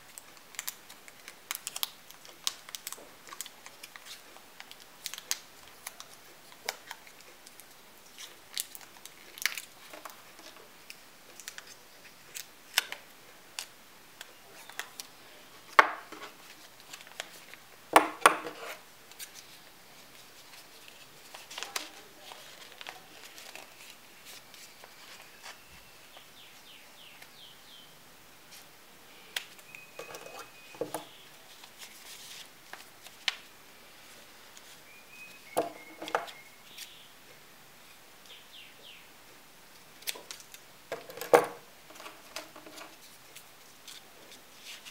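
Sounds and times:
stiff paper clicking and rustling: 0:00.0 - 0:13.7, 0:19.1 - 0:25.6.

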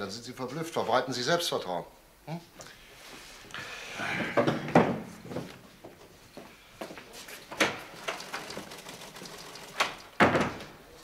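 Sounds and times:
footsteps on hard floor: 0:04.4 - 0:07.7.

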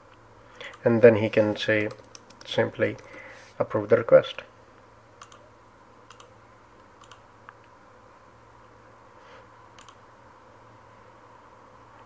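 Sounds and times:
low steady hum: 0:00.0 - 0:12.0
computer mouse clicks: 0:01.8 - 0:03.1, 0:05.2 - 0:05.4, 0:06.1 - 0:07.6, 0:09.8 - 0:10.0.

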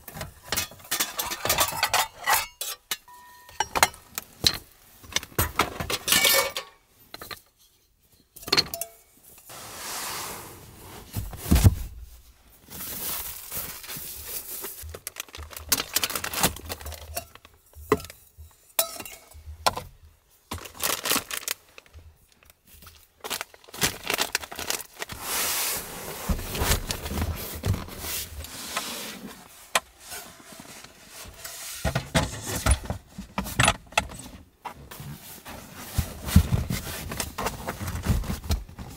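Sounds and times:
metal cookware clinking and rattling: 0:00.4 - 0:04.6, 0:05.2 - 0:07.4, 0:08.3 - 0:09.1, 0:17.0 - 0:19.5
knocks and rustles of handling: 0:10.6 - 0:38.9.

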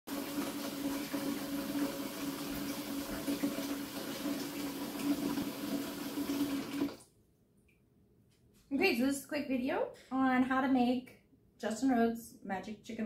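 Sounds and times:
faucet running into plastic bucket: 0:00.1 - 0:07.0.

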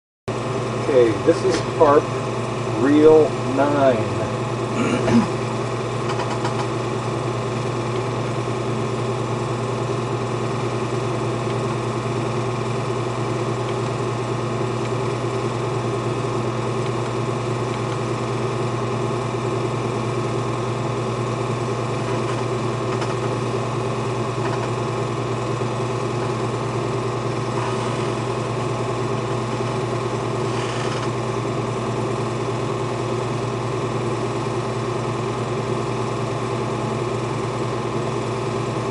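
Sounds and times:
film projector whirring: 0:00.3 - 0:38.9.

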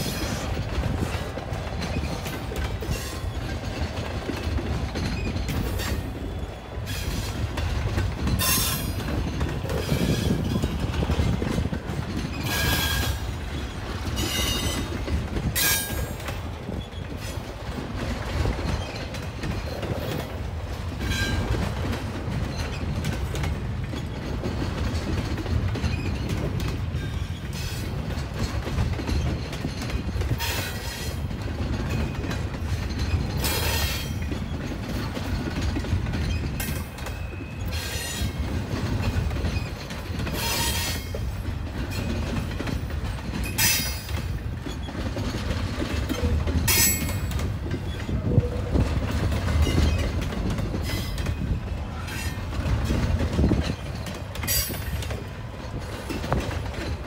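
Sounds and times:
train wheels rumbling on rail: 0:00.0 - 0:57.0
metallic wheel squeals: 0:39.5 - 0:41.2.

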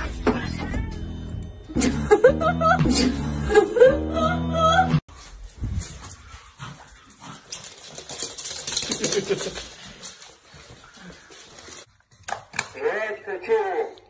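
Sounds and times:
dog claws clicking on floor: 0:07.2 - 0:12.7.

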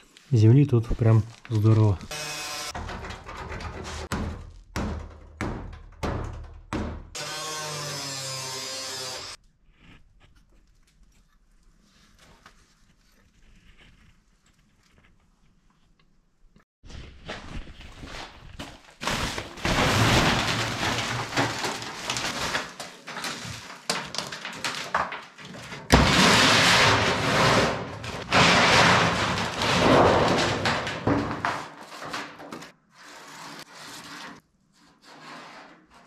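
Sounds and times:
plastic sheeting rustling: 0:16.9 - 0:24.6
steel sheet scraping on concrete: 0:25.6 - 0:36.0.

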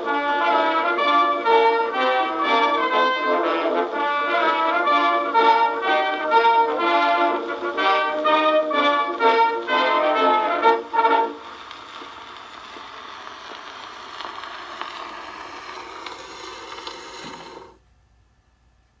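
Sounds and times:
brass band march chords: 0:00.0 - 0:12.0
record surface hiss: 0:00.0 - 0:19.0
faint record ticks: 0:04.8 - 0:17.8.

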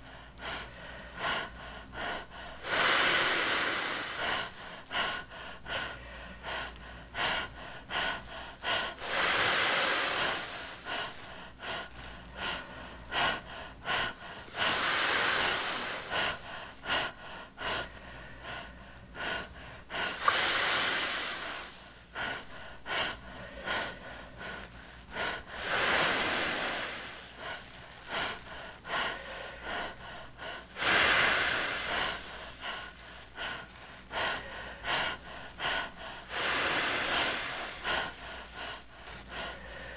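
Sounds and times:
man breathing into plastic bag: 0:00.0 - 0:39.9
plastic bag crackling: 0:32.1 - 0:34.6.

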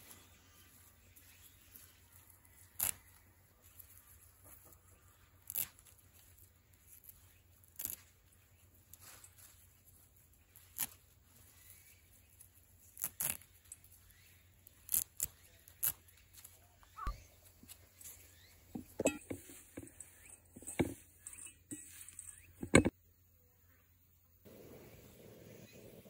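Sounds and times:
fingers stripping seed pods: 0:01.8 - 0:09.8, 0:10.4 - 0:11.8, 0:12.4 - 0:17.1.

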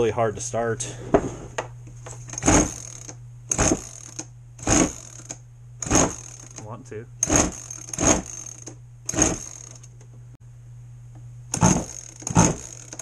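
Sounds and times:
steady low hum: 0:00.0 - 0:13.0
recoil starter cranking: 0:02.3 - 0:10.0, 0:11.5 - 0:13.0.

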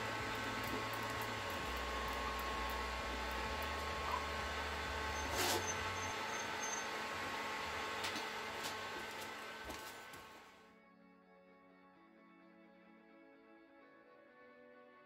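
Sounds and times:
room hum: 0:00.0 - 0:10.7
rubber roller rolling on trim: 0:05.0 - 0:06.8
short brushing noise: 0:05.2 - 0:05.8.

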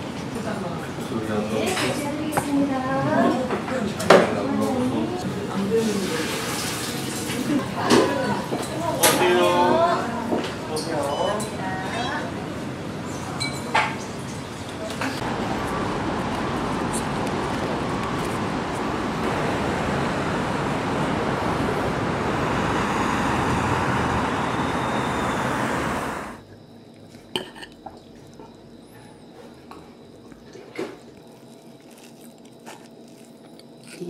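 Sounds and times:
traffic noise: 0:14.0 - 0:26.4.

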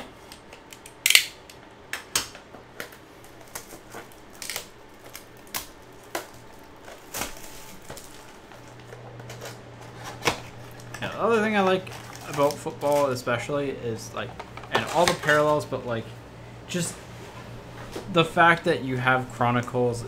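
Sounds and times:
plastic wrap crinkling: 0:02.8 - 0:13.5.

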